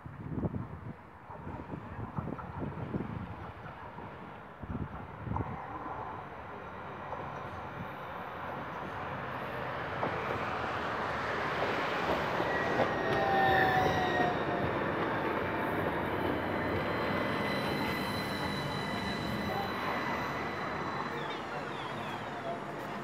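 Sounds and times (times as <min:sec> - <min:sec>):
tram rolling rumble: 0:00.1 - 0:23.0
steady high tram whine: 0:08.8 - 0:23.0
thin high brake squeals: 0:16.4 - 0:23.0.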